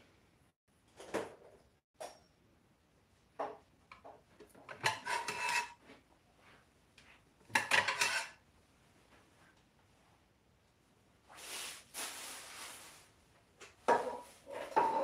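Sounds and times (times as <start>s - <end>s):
ceramic plates clattering: 4.7s - 5.8s, 7.5s - 8.4s, 13.9s - 15.0s.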